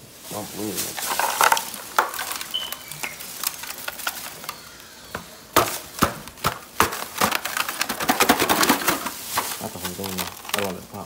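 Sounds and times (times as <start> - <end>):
ice cubes clattering: 0.6 - 4.9, 5.5 - 11.0
plastic bin knocking: 1.0 - 2.6, 5.1 - 10.7.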